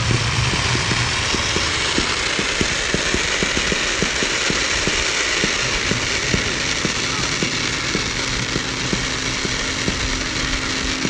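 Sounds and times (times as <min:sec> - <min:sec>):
fireworks fountain hissing: 0:00.0 - 0:11.0
fireworks popping and crackling: 0:00.0 - 0:11.0.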